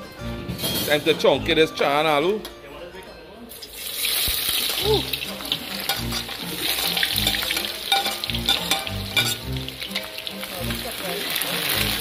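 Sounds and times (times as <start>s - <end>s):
food sizzling in hot oil: 3.5s - 12.0s
spoon clicking against pot: 5.9s - 9.5s.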